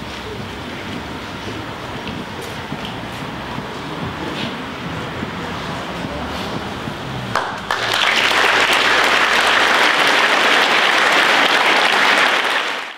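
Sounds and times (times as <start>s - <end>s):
low room noise: 0.0s - 12.9s
audience applauding: 7.3s - 12.9s.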